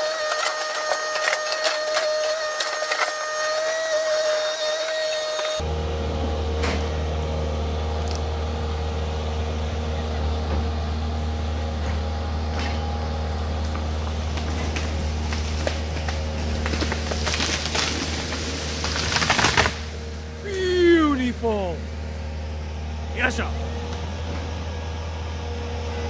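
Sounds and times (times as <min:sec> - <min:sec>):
wood snapping and cracking: 0:00.0 - 0:05.6, 0:13.6 - 0:20.1
excavator diesel engine running: 0:05.6 - 0:19.1, 0:19.7 - 0:26.0.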